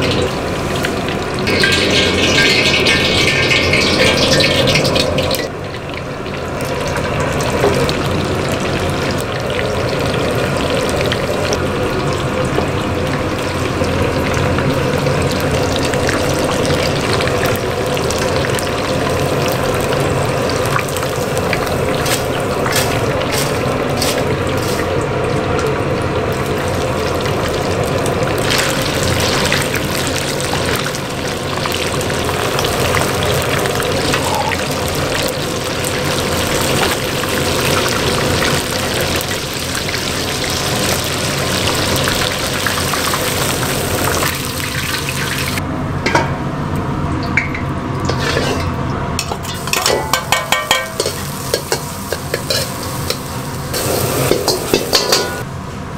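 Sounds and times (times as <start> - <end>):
shrimp sizzling in hot oil: 0.0 - 45.6, 48.1 - 55.4.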